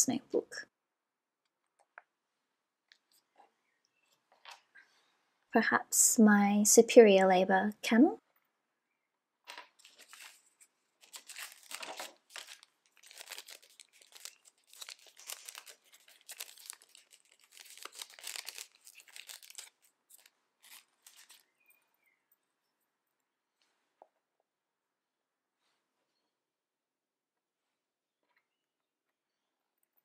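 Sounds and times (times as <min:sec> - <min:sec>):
wrapping crinkling by hand: 0:09.5 - 0:21.6.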